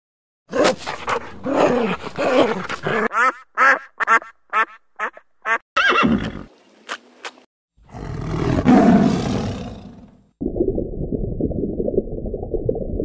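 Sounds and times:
tiger roaring: 0.5 - 3.1, 7.8 - 10.2
duck quacking: 3.1 - 5.6.

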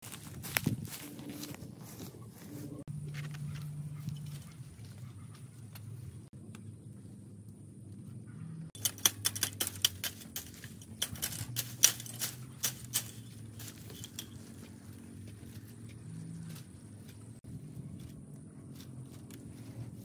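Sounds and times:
dry bamboo leaves crackling: 0.0 - 2.4, 8.8 - 15.6.

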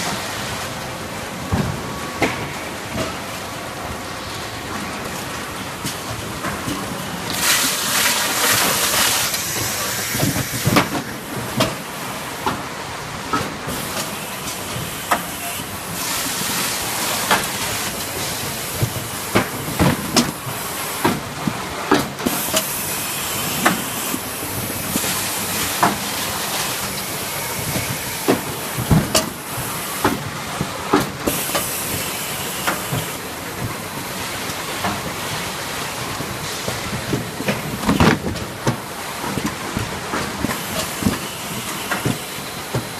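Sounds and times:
bottling machinery hissing: 22.2 - 34.4, 39.9 - 42.9.

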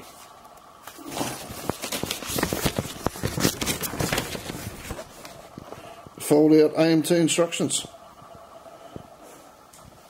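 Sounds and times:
plastic bags and paper crinkling: 0.0 - 6.2.

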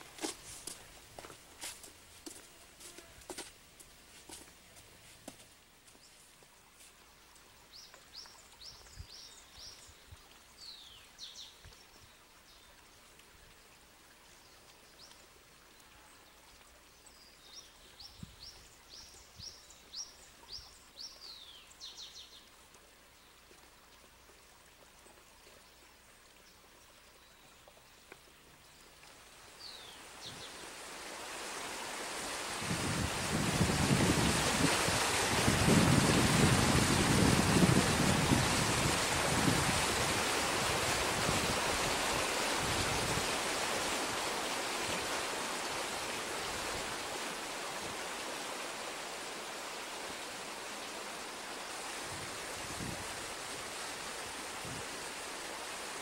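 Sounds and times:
faint outdoor ambience: 0.0 - 56.0
songbird chirping: 25.5 - 32.1.

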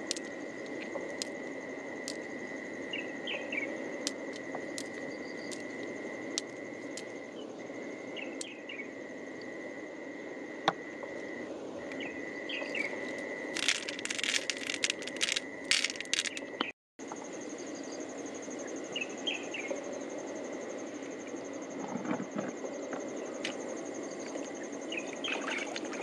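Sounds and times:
high insect drone: 0.0 - 26.0
faint chirps: 2.0 - 9.5, 10.8 - 21.6
pearls clattering into shell: 13.5 - 16.5.

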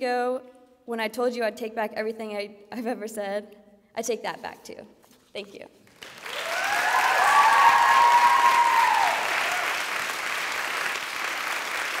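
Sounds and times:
audience applauding: 6.0 - 12.0
drawn-out whoop: 6.4 - 9.8.

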